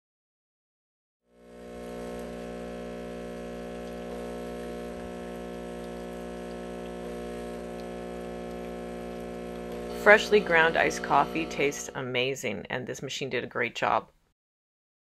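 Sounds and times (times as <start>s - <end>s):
espresso machine humming: 1.3s - 12.0s.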